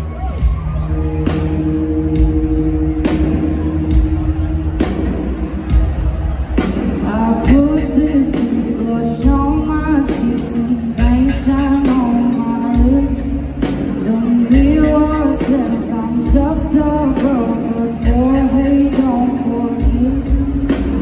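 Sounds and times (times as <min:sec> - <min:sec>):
full band playing: 0:00.0 - 0:21.0
woman singing: 0:06.8 - 0:21.0.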